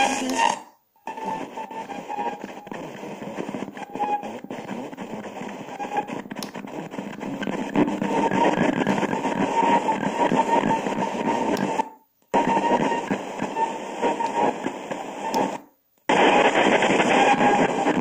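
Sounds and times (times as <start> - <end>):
speaker music: 0.0 - 11.8
faint radio station snatches: 0.0 - 18.0
fm radio static: 0.0 - 18.0.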